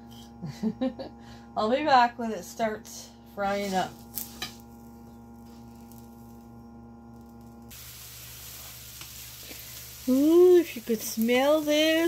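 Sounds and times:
low electrical hum: 0.0 - 12.0
onion and garlic sizzling in pan: 3.5 - 12.0.

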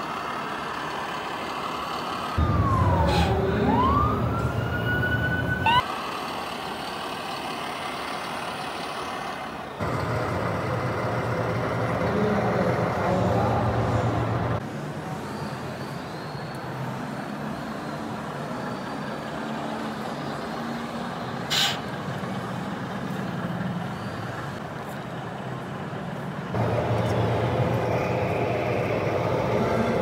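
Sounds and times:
short sharp hiss: 21.5 - 21.8.

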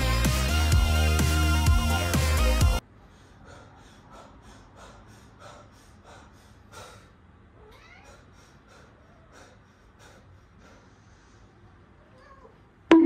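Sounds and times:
person breathing heavily: 2.9 - 7.4, 8.0 - 11.8
cat meowing: 7.6 - 8.3, 12.0 - 12.6.

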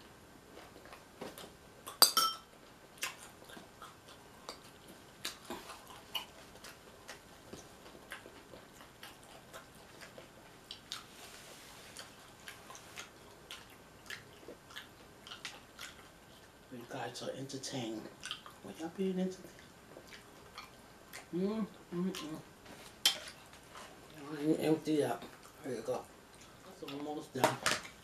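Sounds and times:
cutlery clinking on dish: 1.9 - 2.5
mouth chewing noises: 3.0 - 16.7, 18.0 - 22.5.

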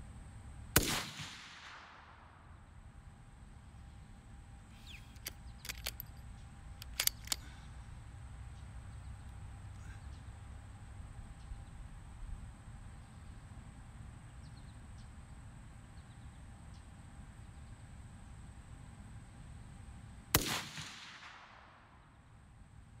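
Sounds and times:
low steady rumble: 0.0 - 23.0
rifle shot echoing: 0.8 - 2.5, 20.3 - 22.1.

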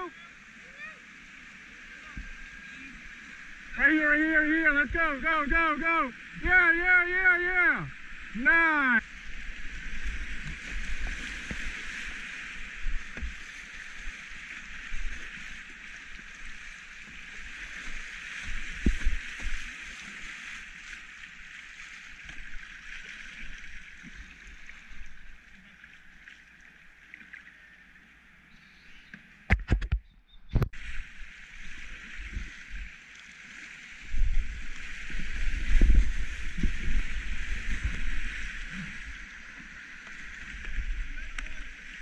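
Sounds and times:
rushing whitewater: 0.0 - 25.9, 30.8 - 42.0
low paddling thumps: 18.4 - 19.6, 34.0 - 39.2.

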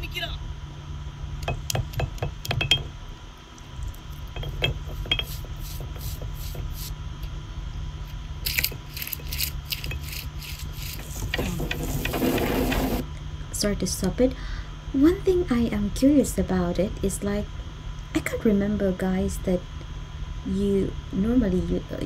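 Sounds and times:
stone roller grinding on stone: 8.5 - 13.0.

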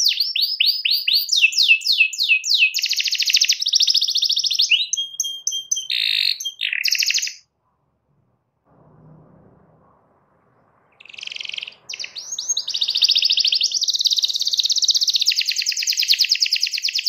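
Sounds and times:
canary singing: 0.0 - 7.5, 10.7 - 17.0.

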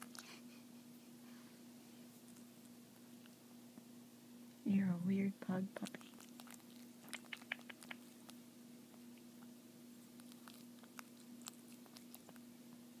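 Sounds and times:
low steady hum: 0.0 - 13.0
puppy nibbling clicks: 5.8 - 12.5.

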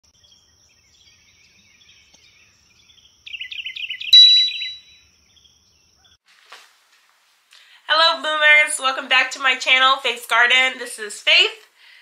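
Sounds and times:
bird-like chirps: 0.1 - 6.2
bright ding: 4.2 - 5.0.

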